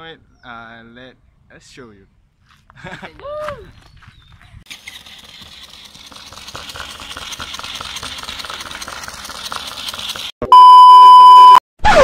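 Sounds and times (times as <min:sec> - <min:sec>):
robot motor whirring: 0:04.7 - 0:10.3.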